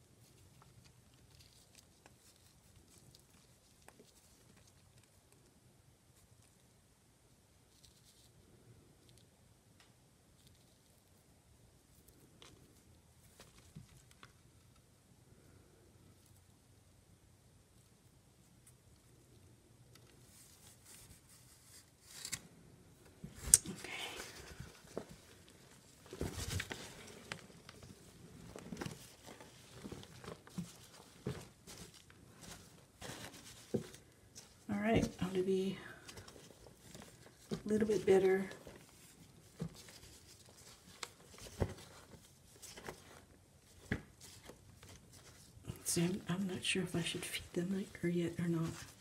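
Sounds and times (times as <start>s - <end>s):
cardboard bedding rustling: 24.1s - 46.4s.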